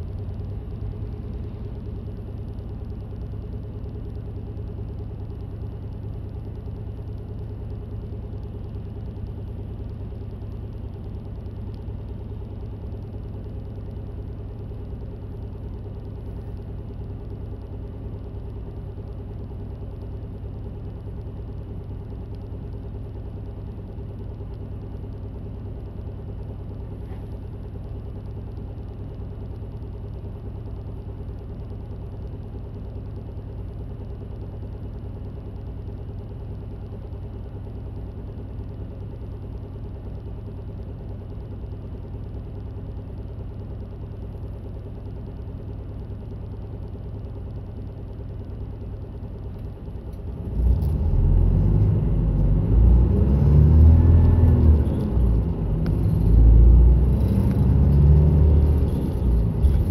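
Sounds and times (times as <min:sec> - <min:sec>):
bus engine drone from inside: 0:00.0 - 0:59.9.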